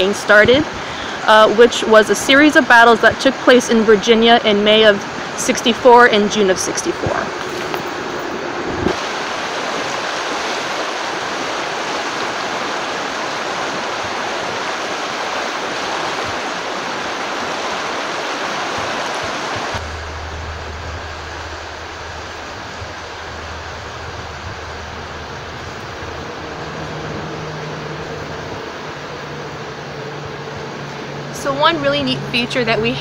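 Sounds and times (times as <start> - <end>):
river water rushing: 0.0 - 33.0
steady low rumble: 19.6 - 33.0.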